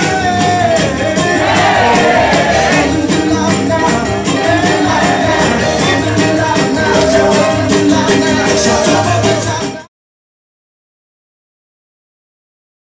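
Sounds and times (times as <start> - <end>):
upbeat dance music: 0.0 - 9.9.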